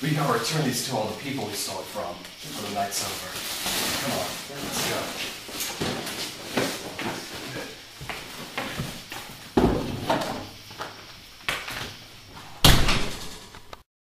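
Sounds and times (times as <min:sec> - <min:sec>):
footsteps on hard floor: 0:04.9 - 0:12.5
heavy thump: 0:09.6 - 0:10.5
glass-paned door slamming: 0:12.6 - 0:13.4.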